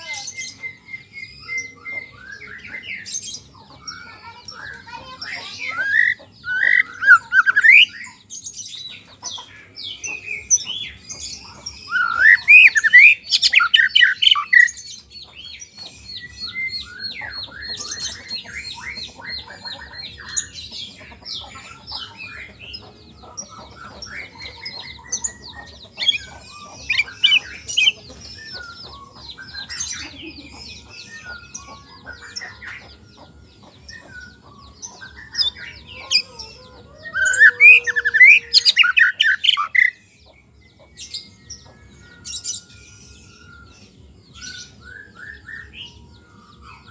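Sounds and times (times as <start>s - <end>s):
bird twittering and chattering: 0.0s - 46.9s
bird singing whistled phrases: 11.9s - 14.7s.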